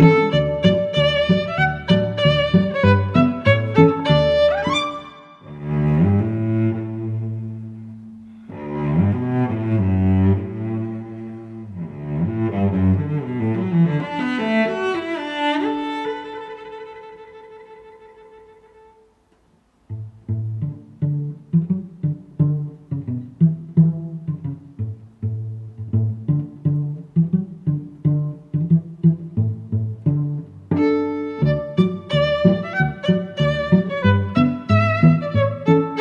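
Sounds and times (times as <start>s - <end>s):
short separate notes in steady rhythm: 0.0s - 5.7s
instrumental music with held notes: 0.0s - 36.0s.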